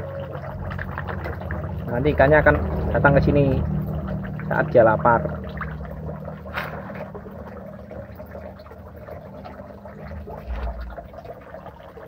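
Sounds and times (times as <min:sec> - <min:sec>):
fish slurping and splashing: 0:00.0 - 0:12.0
brief low rumble: 0:10.2 - 0:11.2.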